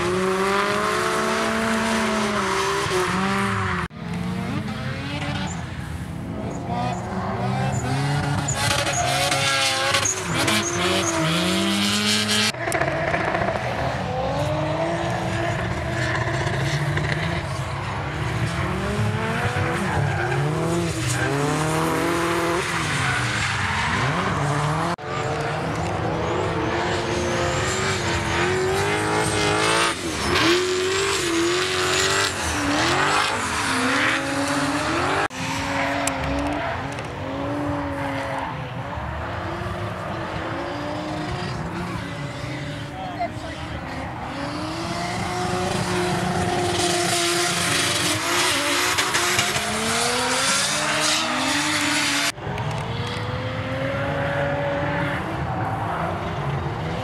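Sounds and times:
car engines revving: 0.0 - 57.0.

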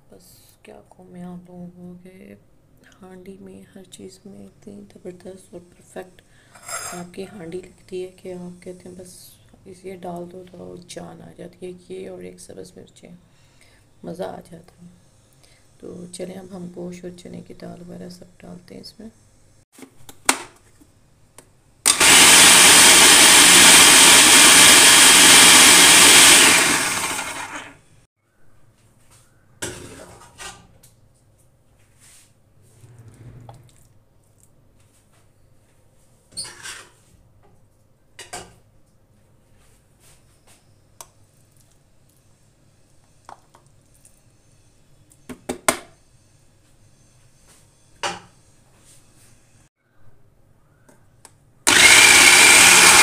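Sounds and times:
food processor running: 21.9 - 27.9, 51.7 - 53.0.

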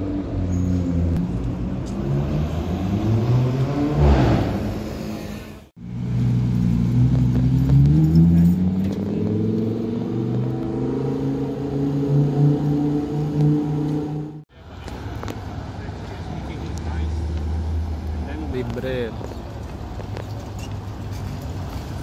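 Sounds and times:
sports car engines in traffic: 0.0 - 22.0
car passing close: 0.6 - 14.4.

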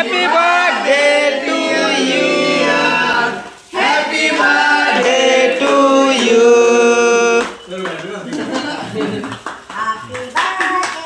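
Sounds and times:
voices singing together: 0.0 - 9.4.

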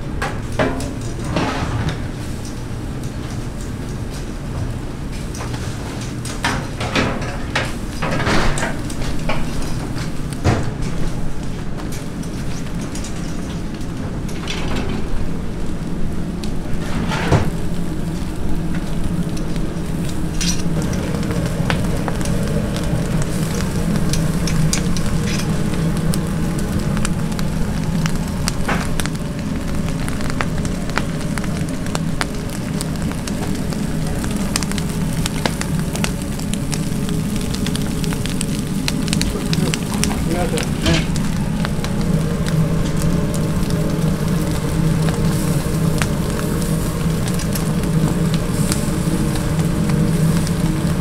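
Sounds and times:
fish sizzling on grill: 0.0 - 14.4, 15.0 - 51.0
charcoal crackles and pops: 0.0 - 51.0
low steady hum: 0.0 - 51.0.

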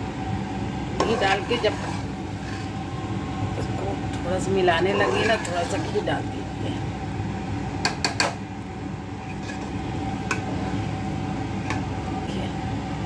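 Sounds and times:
steady low hum: 0.0 - 13.0
spoon scraping metal pot: 1.0 - 2.8, 4.9 - 6.1, 9.2 - 10.8.

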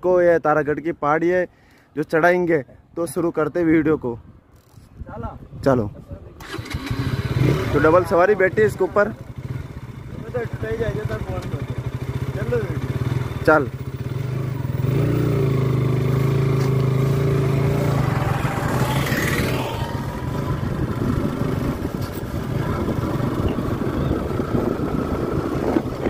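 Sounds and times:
road and wind noise: 0.0 - 26.0
motorcycle engine accelerating: 6.4 - 26.0.

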